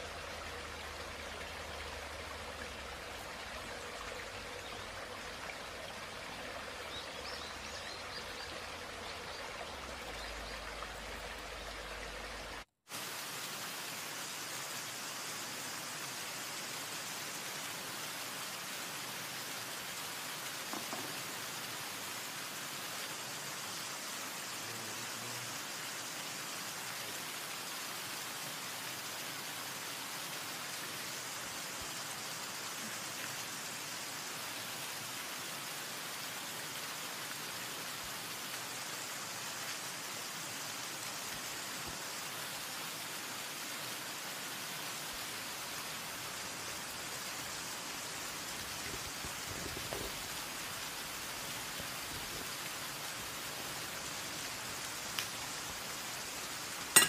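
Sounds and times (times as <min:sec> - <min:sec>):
steady rain-like hiss: 0:00.0 - 0:57.0
faint knock: 0:20.7 - 0:21.2.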